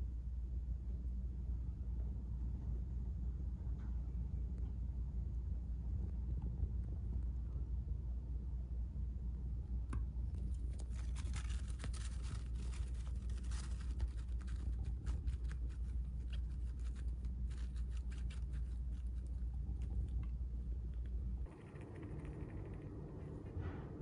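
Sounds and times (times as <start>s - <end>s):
steady low hum: 0.0s - 24.0s
scratching at fleece: 10.4s - 20.1s
tissue paper rustling and crinkling: 10.6s - 19.2s.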